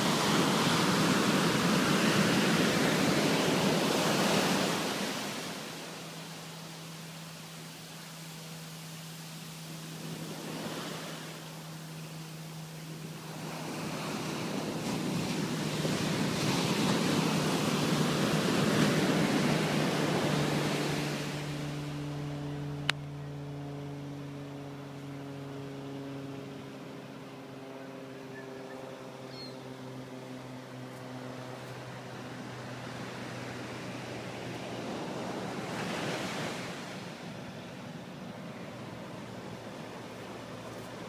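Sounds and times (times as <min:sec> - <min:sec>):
ocean surf rushing: 0:00.0 - 0:22.8, 0:31.9 - 0:41.0
vehicle engine hum: 0:00.0 - 0:41.0.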